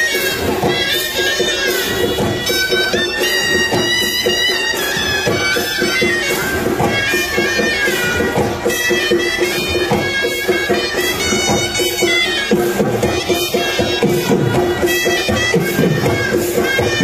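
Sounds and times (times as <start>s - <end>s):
drum strokes: 0.0s - 17.0s
reed pipes playing melody: 0.0s - 17.0s.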